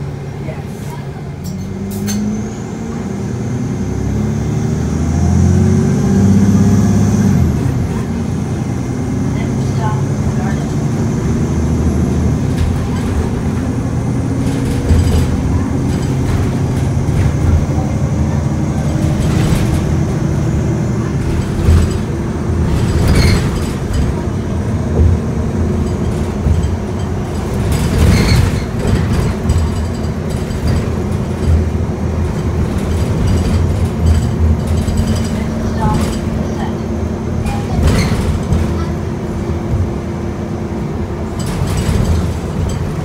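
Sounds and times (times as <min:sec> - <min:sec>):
bus diesel engine running: 0:00.0 - 0:43.0
road noise: 0:00.0 - 0:43.0
knocks and rattles: 0:12.3 - 0:39.9, 0:41.2 - 0:43.0.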